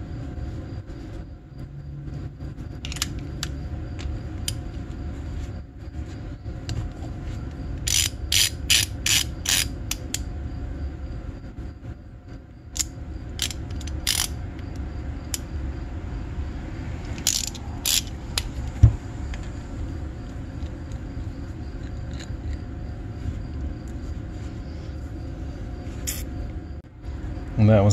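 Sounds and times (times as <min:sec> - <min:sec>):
hand ratchet ratcheting: 0:07.8 - 0:10.2, 0:12.8 - 0:14.4, 0:17.2 - 0:18.5
dull thump: 0:18.8 - 0:19.0.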